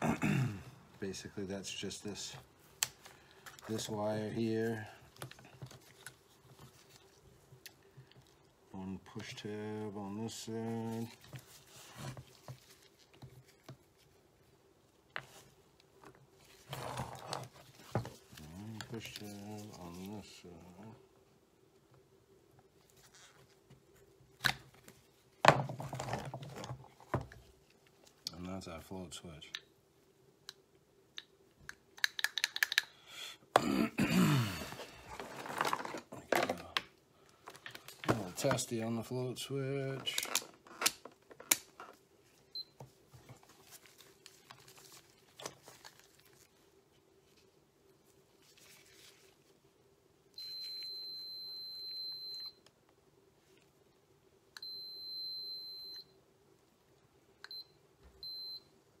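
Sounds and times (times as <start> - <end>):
sharp plastic and metal clicks: 31.2 - 32.9.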